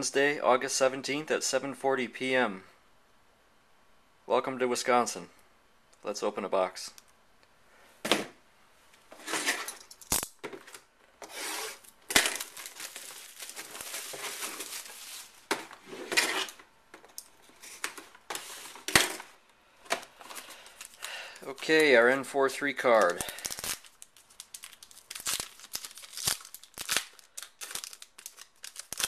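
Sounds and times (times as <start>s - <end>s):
cardboard and wrapping rustling: 10.4s - 16.6s, 17.4s - 19.2s, 19.8s - 29.0s.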